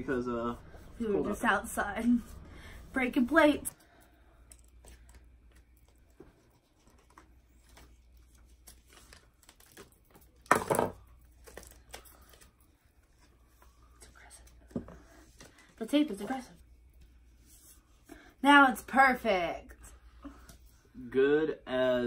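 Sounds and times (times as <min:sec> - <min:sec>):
tape rustling and crinkling: 0:04.4 - 0:13.8.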